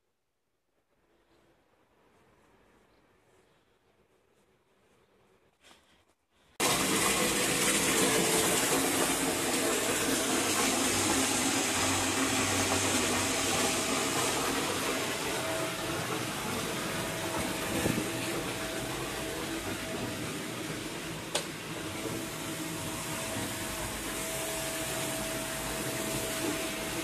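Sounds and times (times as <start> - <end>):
tap water gushing into bathtub: 6.6 - 27.0.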